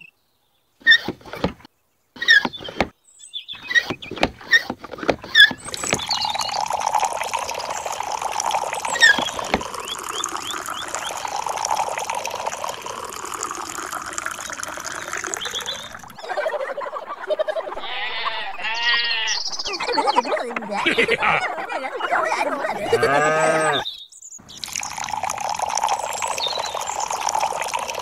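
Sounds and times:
hand pump handle clicks and squeaks: 0.8s - 2.9s, 3.6s - 6.2s
water pouring into pool: 4.1s - 17.1s, 24.4s - 28.0s.

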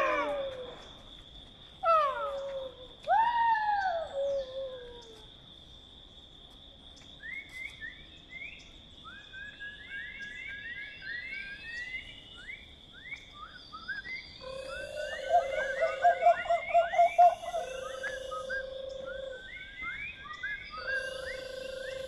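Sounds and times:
bird chirps: 7.2s - 22.0s
high insect drone: 13.6s - 22.0s
pulsing frog-like trill: 20.8s - 22.0s.

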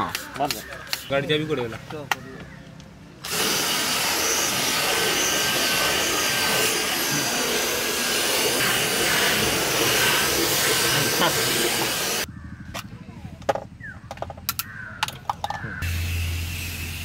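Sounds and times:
cordless drill motor running: 3.2s - 12.3s.

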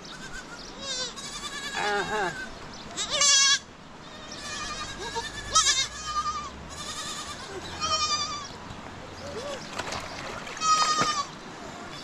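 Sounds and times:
sheep and goats bleating: 0.0s - 8.6s, 10.6s - 11.3s.

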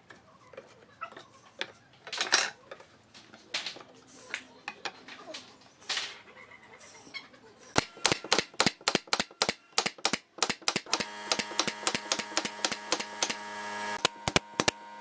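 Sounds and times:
nail gun firing into wood: 7.8s - 13.4s, 14.0s - 14.8s
steady hum: 10.9s - 15.0s.

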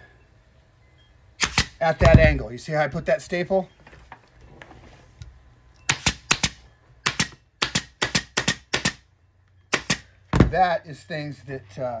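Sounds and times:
air stapler firing staples: 1.4s - 1.8s, 5.9s - 9.0s, 9.7s - 10.1s.

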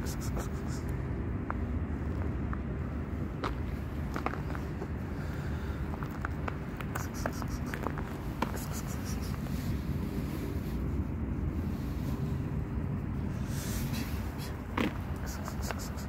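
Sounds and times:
wind rumbling on microphone: 0.0s - 16.0s
footsteps on thin snow: 1.4s - 10.6s.

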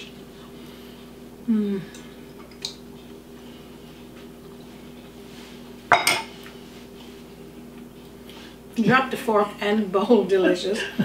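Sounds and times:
steady low hum: 0.0s - 11.0s
dish clattering on countertop: 5.9s - 6.3s.

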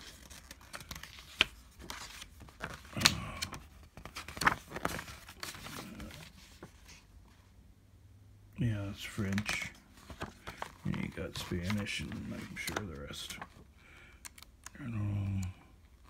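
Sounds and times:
paper booklet rustling: 0.0s - 7.5s, 9.0s - 15.5s.

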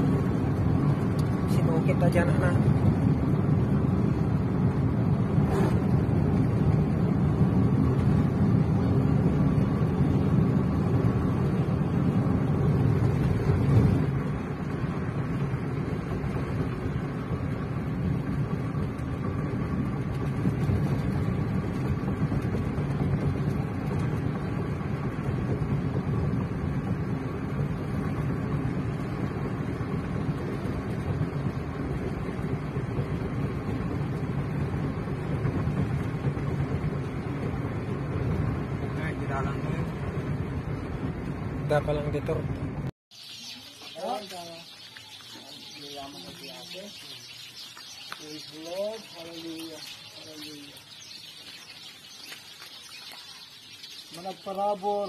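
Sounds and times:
car engine and tyre noise: 0.0s - 43.7s.

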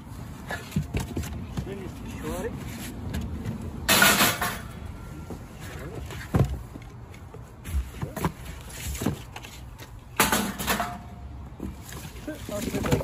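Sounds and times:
scrapes and knocks of metal parts: 2.6s - 4.8s, 5.6s - 13.0s.

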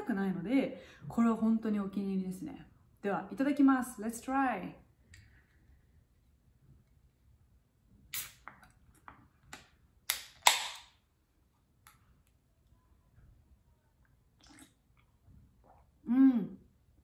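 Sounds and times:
can cracking open with hiss: 8.1s - 8.5s.

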